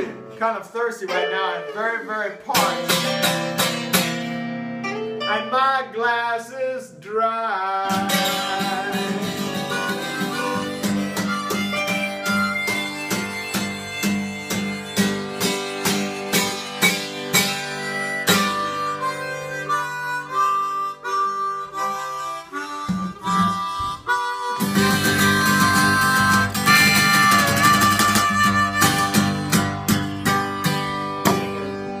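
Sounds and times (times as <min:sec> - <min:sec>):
harmonica solo: 0:01.1 - 0:05.4, 0:07.9 - 0:32.0
acoustic guitars strumming: 0:01.1 - 0:06.0, 0:07.7 - 0:32.0.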